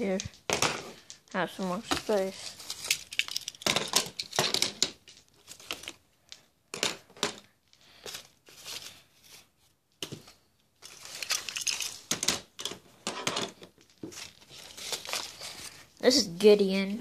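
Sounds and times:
toys rustling and scraping: 0.0 - 6.4.

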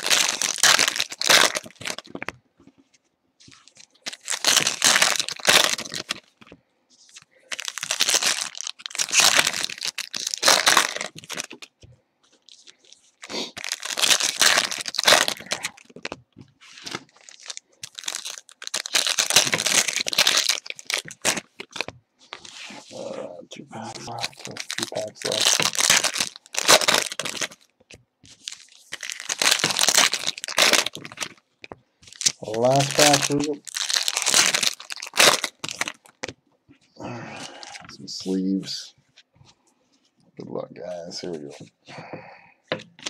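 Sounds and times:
foil wrappers tearing and crinkling: 0.0 - 2.3, 3.4 - 6.4, 7.1 - 23.0, 23.8 - 36.3.

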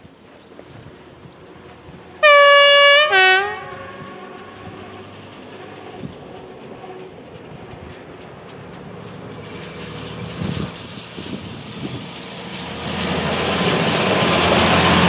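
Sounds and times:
railbus engine drone: 0.0 - 15.0
wheels on rails: 4.1 - 15.0.

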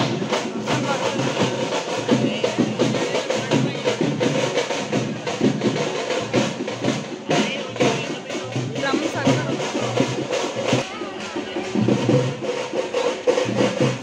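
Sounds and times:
crowd voices: 0.0 - 14.0
drums beating fast: 0.0 - 14.0.

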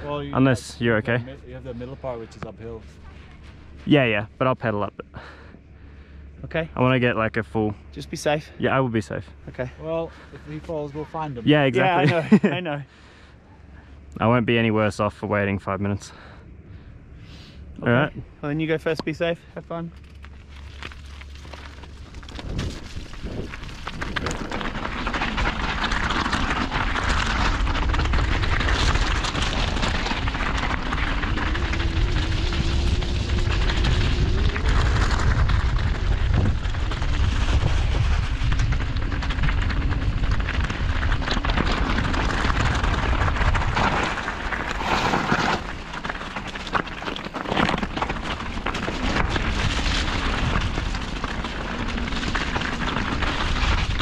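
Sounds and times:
bike rattling: 19.9 - 54.0
tyres running over stones: 19.9 - 54.0
wind buffeting microphone: 26.6 - 44.1.

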